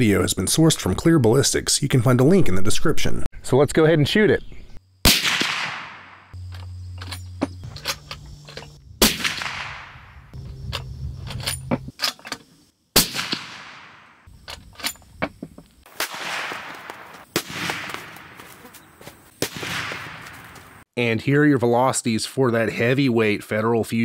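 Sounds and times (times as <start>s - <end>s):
rifle shots echoing: 5.1s - 6.4s, 9.0s - 10.4s, 13.0s - 14.3s, 15.9s - 18.6s, 19.4s - 20.8s.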